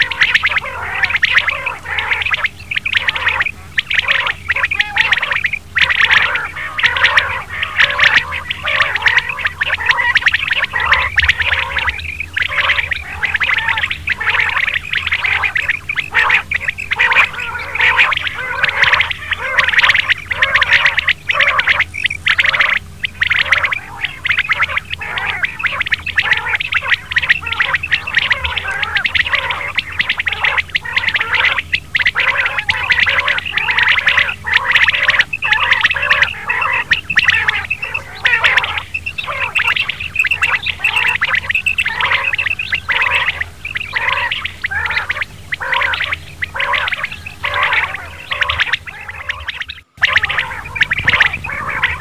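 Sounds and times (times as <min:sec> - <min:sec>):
quail calls: 0:00.0 - 0:52.0
steady low hum: 0:00.0 - 0:52.0.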